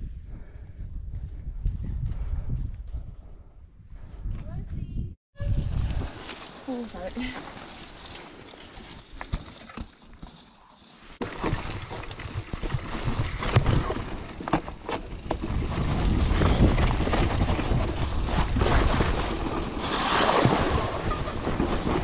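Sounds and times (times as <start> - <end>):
wind buffeting microphone: 0.0 - 6.2, 15.1 - 19.6
bike tyre rumble: 5.6 - 22.0
bike knocking and rattling over rocks: 7.4 - 19.9, 20.8 - 22.0.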